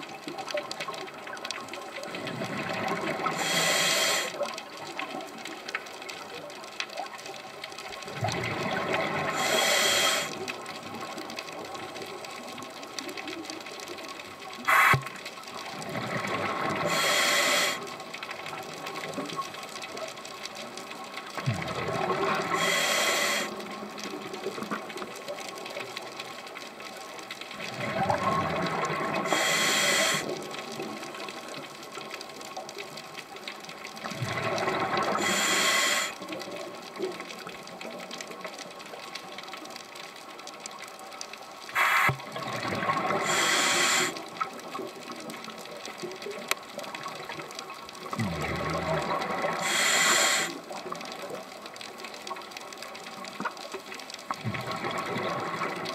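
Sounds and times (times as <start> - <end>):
rush of bubbles: 0.0 - 5.6, 7.9 - 20.8, 21.4 - 25.2, 27.5 - 31.5, 33.9 - 38.4, 41.7 - 55.9
diver breathing through regulator: 3.2 - 4.4, 9.3 - 10.4, 14.7 - 15.1, 16.8 - 17.9, 22.4 - 23.6, 29.2 - 30.4, 35.1 - 36.2, 41.8 - 42.2, 43.1 - 44.2, 49.5 - 50.6.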